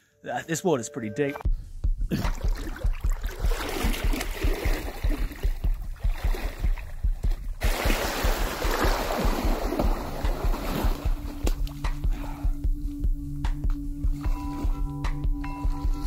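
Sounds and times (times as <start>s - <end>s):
background music with steady beat: 0.6s - 16.0s
bike tyres splashing through water: 2.6s - 5.5s, 7.6s - 11.4s.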